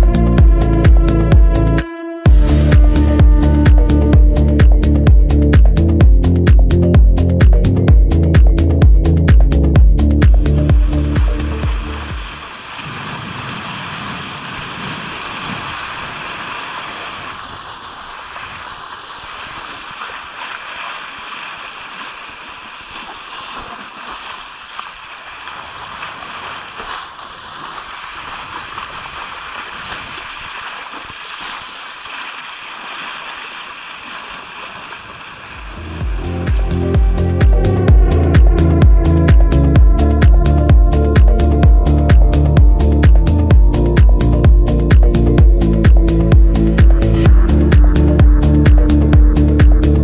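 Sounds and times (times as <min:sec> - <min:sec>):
wind on microphone: 0:00.0 - 0:20.6, 0:35.6 - 0:50.0
water hissing and splashing: 0:10.8 - 0:36.8.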